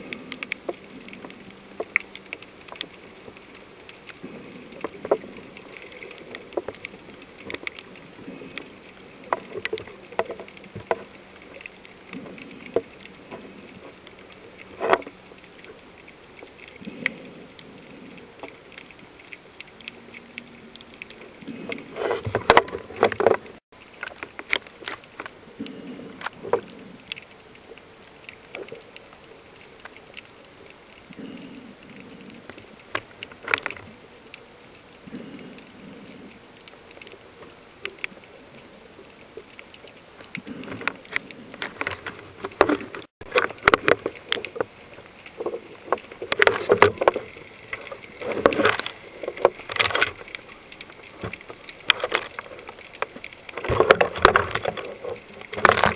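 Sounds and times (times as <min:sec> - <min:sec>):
muffled underwater water wash: 0:00.0 - 0:55.9
underwater clicks and knocks: 0:00.1 - 0:15.8, 0:16.4 - 0:27.3, 0:32.0 - 0:34.0, 0:39.0 - 0:55.9.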